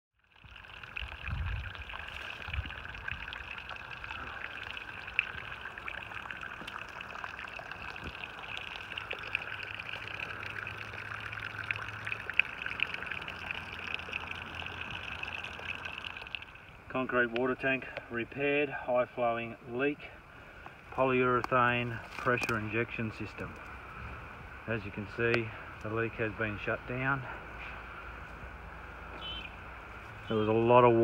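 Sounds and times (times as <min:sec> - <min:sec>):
water jetting from a leak: 0:00.2 - 0:18.2
water splashing: 0:00.3 - 0:16.9.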